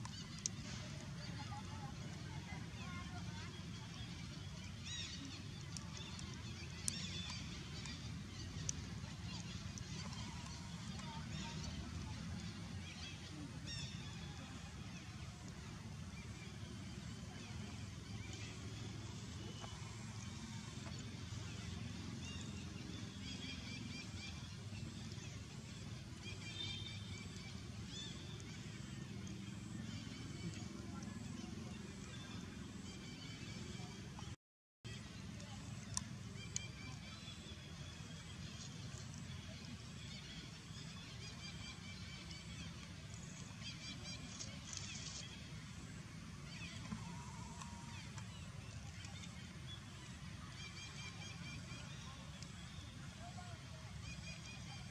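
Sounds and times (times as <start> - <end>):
low outdoor rumble: 0.0 - 54.9.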